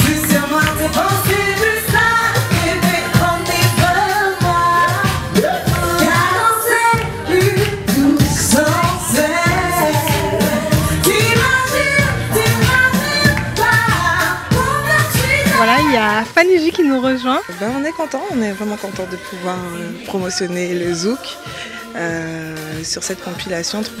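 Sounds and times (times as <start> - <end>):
band with steady beat: 0.0 - 16.5
woman singing into a microphone: 0.0 - 24.0.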